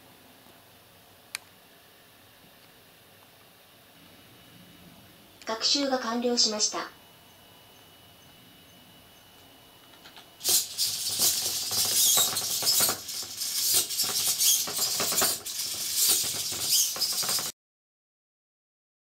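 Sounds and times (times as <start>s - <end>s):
robot clattering on wooden floor: 9.9s - 17.5s.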